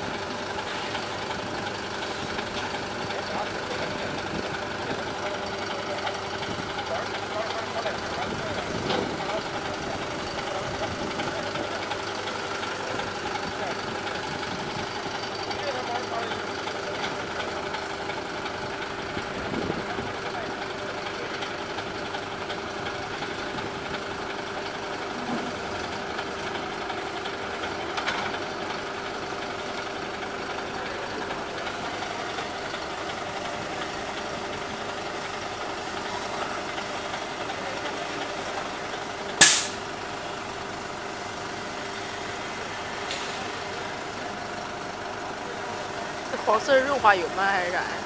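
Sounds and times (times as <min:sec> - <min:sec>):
tow truck engine humming: 0:00.0 - 0:48.0
hydraulic arm extending: 0:39.4 - 0:39.8
loud sharp burst: 0:39.4 - 0:39.8.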